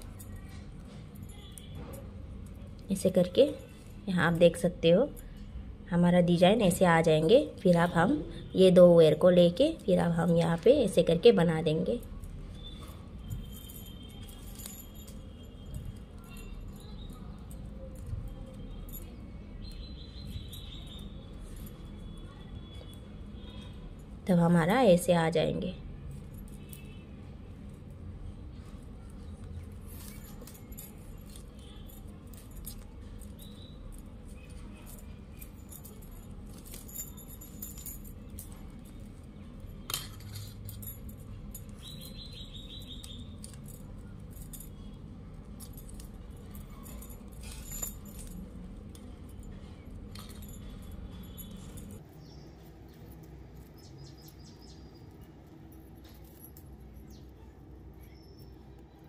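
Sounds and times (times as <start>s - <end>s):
metallic bangle jingles: 9.1s - 24.8s, 28.6s - 59.0s.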